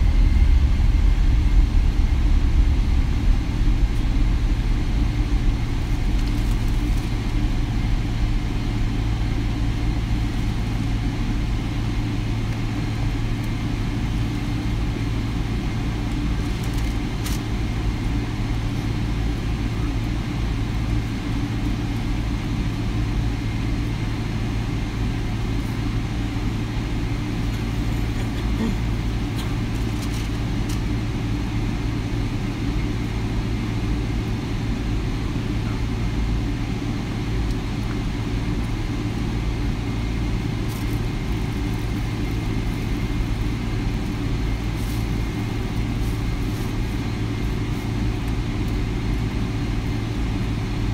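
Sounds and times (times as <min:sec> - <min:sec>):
rush of air: 0:00.0 - 0:08.0
low engine hum: 0:00.0 - 0:50.9.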